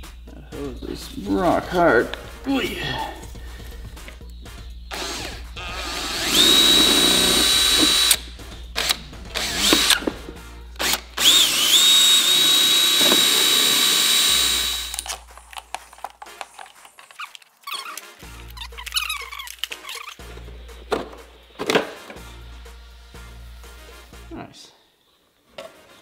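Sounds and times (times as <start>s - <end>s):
cordless drill whining: 4.9s - 8.2s, 8.8s - 10.2s, 10.8s - 15.2s.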